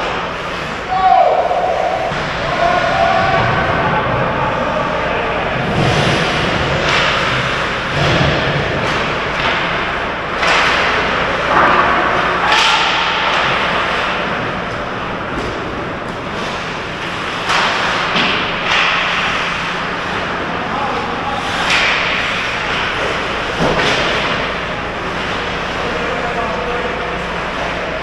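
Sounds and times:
hockey sticks and puck knocking: 6.8s - 19.4s, 21.4s - 25.4s.

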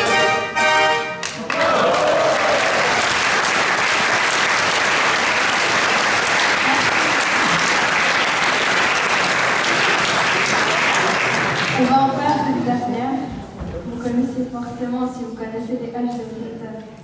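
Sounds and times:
audience applauding: 1.2s - 11.9s.

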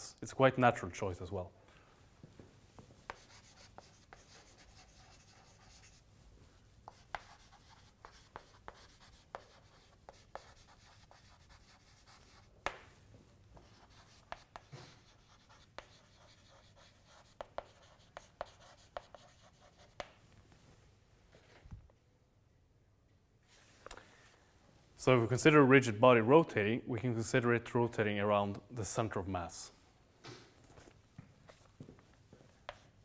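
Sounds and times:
chalk tapping on board: 3.0s - 6.0s, 6.9s - 12.8s, 13.6s - 20.2s, 32.7s - 33.0s
chalk scratching on blackboard: 3.1s - 6.1s, 6.8s - 12.8s, 13.6s - 20.1s.

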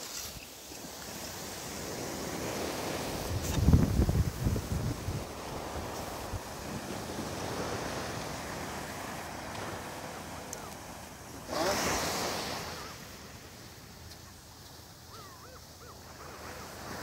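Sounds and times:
ocean surf washing on shore: 0.0s - 17.0s
wind on microphone: 1.3s - 13.0s.

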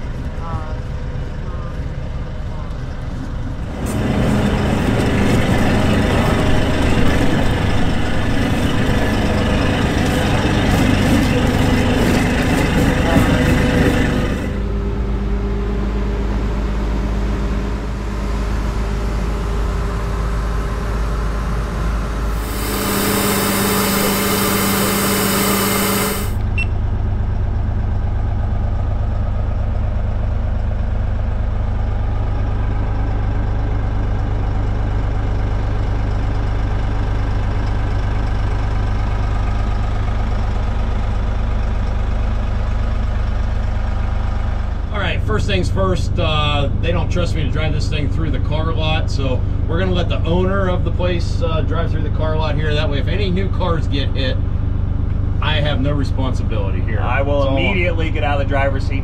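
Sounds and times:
diesel engine idling: 0.0s - 59.0s
loud hiss: 22.3s - 26.4s.

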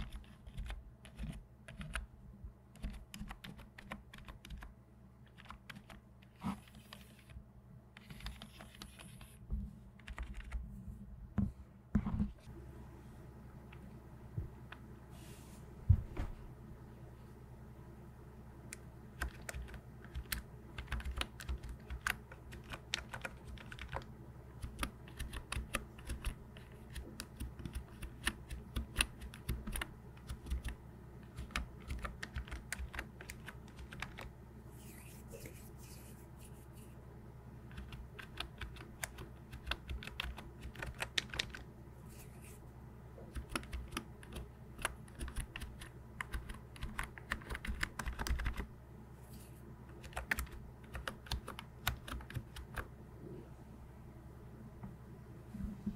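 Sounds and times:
keyboard typing clatter: 2.7s - 4.7s, 5.3s - 6.0s, 10.0s - 10.6s, 19.2s - 34.3s, 37.7s - 41.7s, 43.3s - 48.7s, 49.9s - 52.9s.

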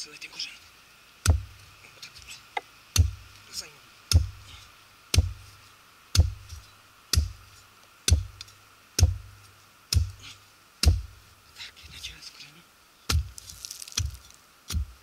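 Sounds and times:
digging tool chopping tree root: 1.2s - 1.6s, 2.9s - 3.5s, 4.1s - 11.3s, 13.1s - 15.0s.

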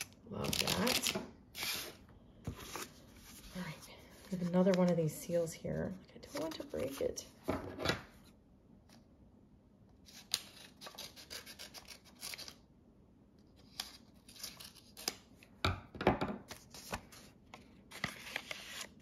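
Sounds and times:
scissors snipping paper: 10.1s - 12.6s
paper crackling and rustling: 16.5s - 19.0s.

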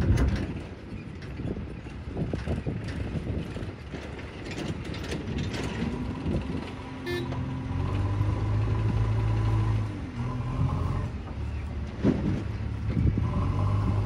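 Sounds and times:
diesel engine revving: 5.4s - 14.0s.

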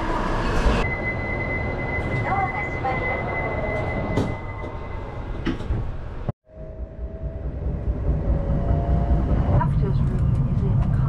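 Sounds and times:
train rumbling pulling away: 0.0s - 11.0s
high warning tone: 0.2s - 5.5s.

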